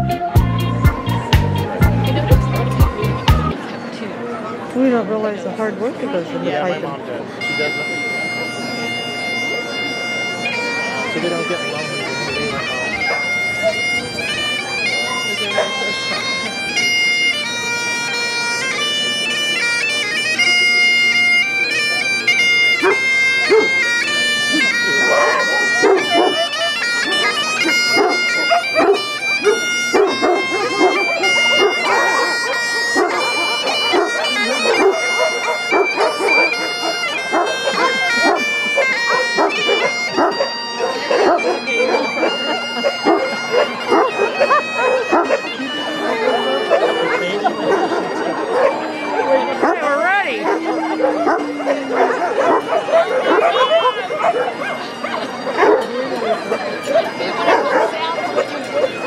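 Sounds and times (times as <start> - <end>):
bagpipes playing: 0.0 - 3.7, 4.8 - 59.0
dogs barking: 13.0 - 14.0, 15.0 - 16.9, 22.5 - 59.0.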